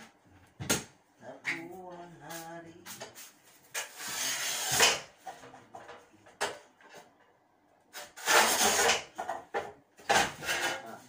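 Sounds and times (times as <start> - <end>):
rough scrapes: 3.2 - 5.0, 8.0 - 9.1.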